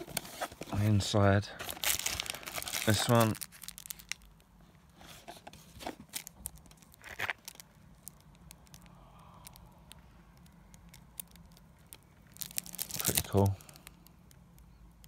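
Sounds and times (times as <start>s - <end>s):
packaging crinkles: 1.5s - 4.5s, 5.1s - 14.8s
packaging rustling and clicking: 1.6s - 4.5s, 5.1s - 8.9s, 10.4s - 14.0s.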